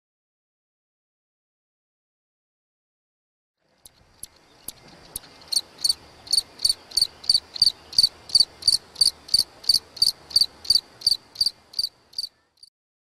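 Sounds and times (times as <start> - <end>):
cricket chirping: 4.2 - 12.7.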